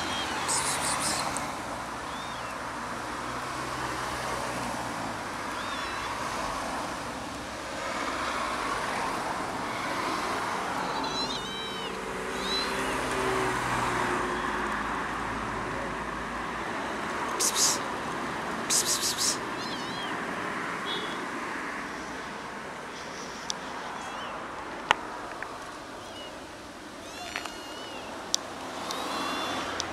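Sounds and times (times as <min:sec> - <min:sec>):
kitten meowing: 0:00.0 - 0:01.4, 0:02.0 - 0:02.6, 0:05.5 - 0:06.2, 0:10.7 - 0:13.4, 0:14.1 - 0:14.8, 0:18.7 - 0:20.3, 0:24.0 - 0:24.4, 0:26.0 - 0:26.4, 0:27.0 - 0:28.1, 0:28.8 - 0:29.8
road traffic noise: 0:00.0 - 0:29.9.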